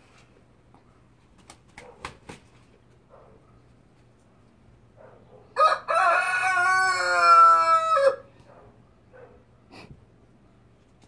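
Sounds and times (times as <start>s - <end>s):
rooster crowing: 5.6s - 8.3s.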